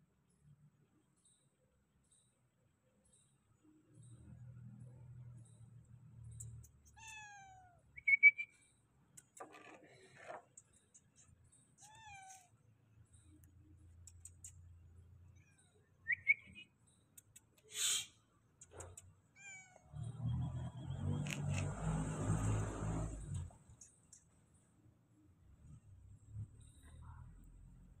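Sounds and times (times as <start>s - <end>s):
cat chirping: 6.4s - 8.4s, 11.8s - 12.5s, 18.6s - 19.9s
cat meowing: 6.9s - 7.8s, 11.8s - 12.5s, 19.4s - 19.9s.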